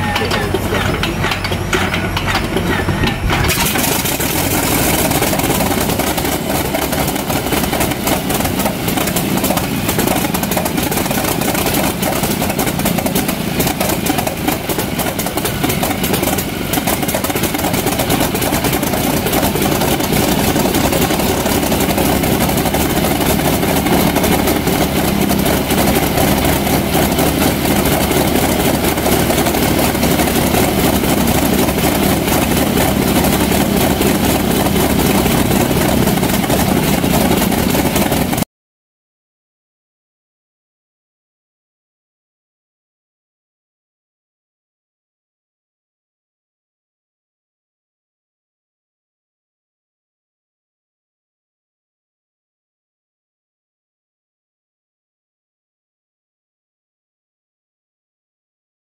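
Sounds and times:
radial aircraft engine running: 0.0s - 38.5s.

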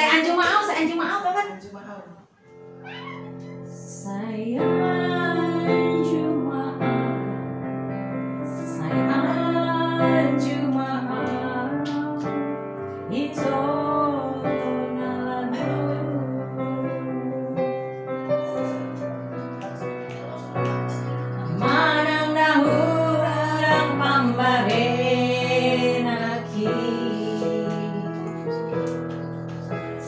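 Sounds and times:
digital piano chords: 2.4s - 30.0s
woman singing: 3.8s - 7.5s, 8.5s - 17.7s, 21.4s - 28.6s.

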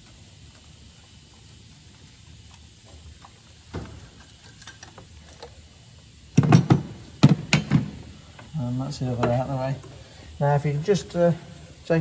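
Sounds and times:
spanner and metal pipe clinking: 4.2s - 5.5s.

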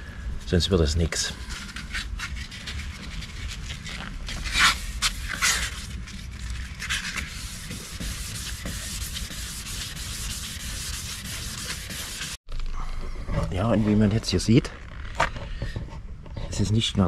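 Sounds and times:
sandpaper rubbing on plastic: 1.4s - 12.4s.

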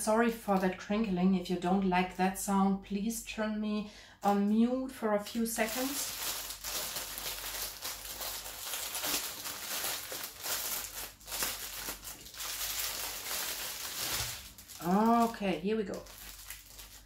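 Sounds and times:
plastic bags crinkling: 5.4s - 17.0s.

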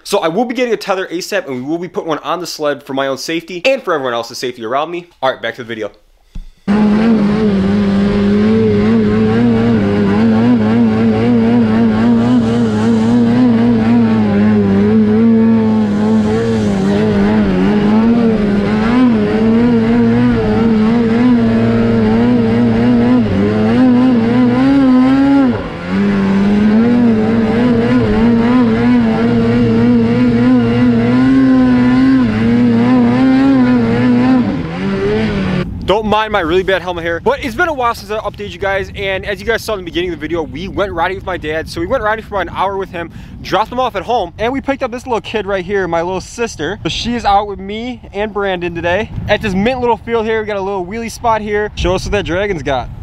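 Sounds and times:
snowmobile engine revving: 6.7s - 42.7s.

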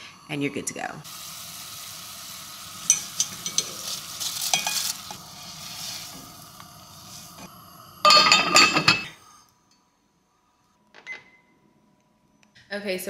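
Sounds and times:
boiling water hissing: 0.0s - 9.6s
spoon scraping a pot: 2.9s - 6.2s.

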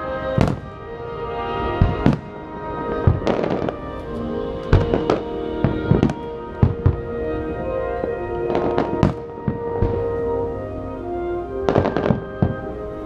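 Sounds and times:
music with held tones: 0.0s - 13.0s
fireworks bangs: 0.2s - 7.3s, 8.4s - 10.2s, 11.7s - 12.8s.

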